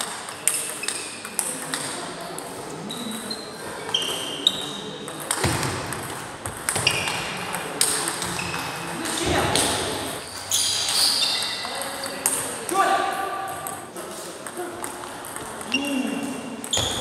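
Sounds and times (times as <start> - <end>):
distant table tennis clicks: 0.0 - 2.0, 5.0 - 10.2, 13.4 - 17.0
table tennis balls clicking: 0.0 - 2.0, 5.1 - 11.0, 13.4 - 17.0.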